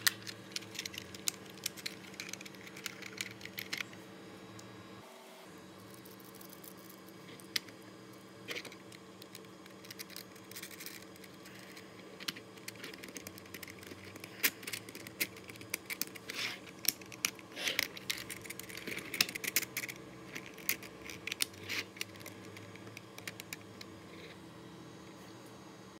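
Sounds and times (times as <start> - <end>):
plastic parts clicking together: 0.0 - 4.0, 8.5 - 23.9
faint steady hum: 0.0 - 26.0.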